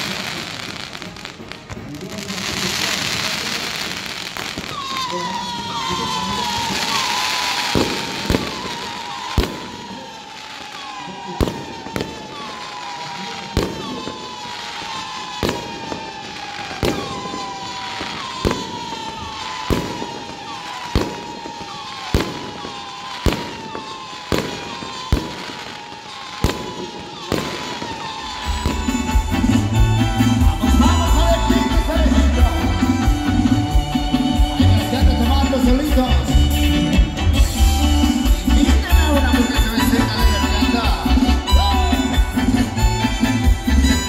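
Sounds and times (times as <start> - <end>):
fireworks bangs: 0.0 - 44.0
fireworks rockets whistling: 0.0 - 44.0
band music: 26.5 - 44.0.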